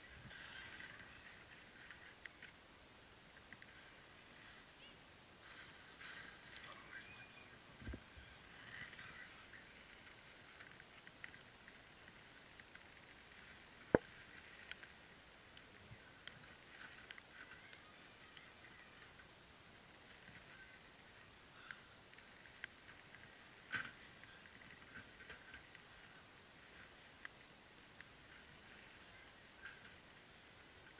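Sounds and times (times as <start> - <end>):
wood fire crackling: 0.0 - 30.9.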